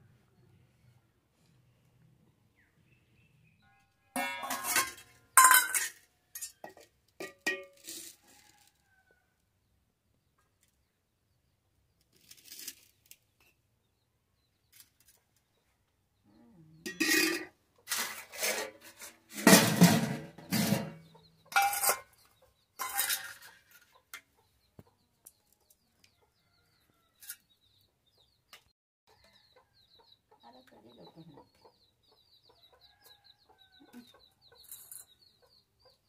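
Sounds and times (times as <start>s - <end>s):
metal plates and bowls clinking: 4.2s - 8.1s, 16.8s - 22.2s, 22.8s - 23.8s
chickens clucking: 19.8s - 36.0s.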